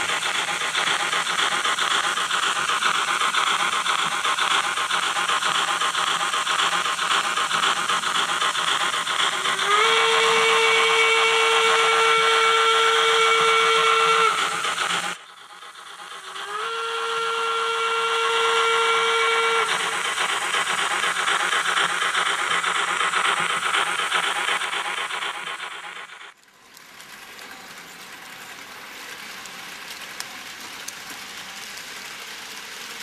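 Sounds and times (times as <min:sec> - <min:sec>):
distorted steam whistle blasts: 0:00.0 - 0:26.3
model locomotive running noise: 0:00.0 - 0:33.0.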